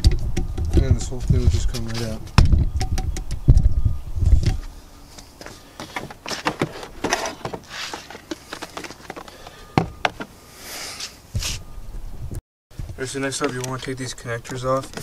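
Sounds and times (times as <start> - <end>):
heavy thumps: 5.4 - 10.3
plastic clicks scrapes and rustles: 13.3 - 15.0.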